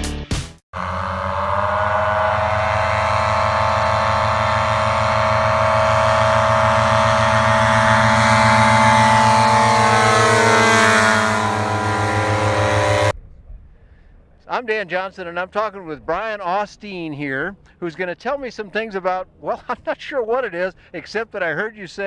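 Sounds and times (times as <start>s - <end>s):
small gas engines running at high power: 0.8s - 13.1s.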